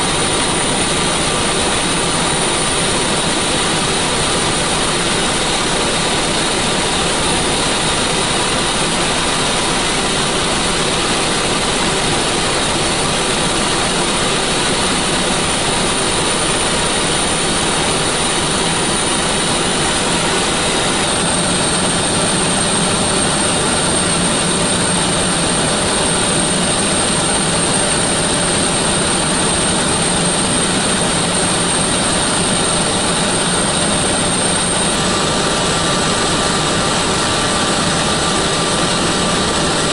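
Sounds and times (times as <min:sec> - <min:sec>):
constant high whine: 0:00.0 - 0:39.9
helicopter turbine and rotor noise: 0:00.0 - 0:39.9.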